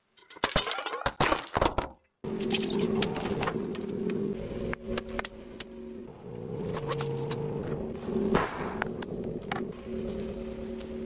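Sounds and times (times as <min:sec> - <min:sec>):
car engine humming: 0:02.3 - 0:11.0.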